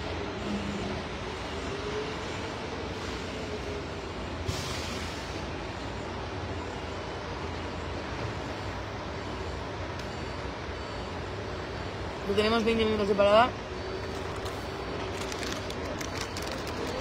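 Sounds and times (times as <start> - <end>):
brief sharp hiss: 4.4 - 5.4.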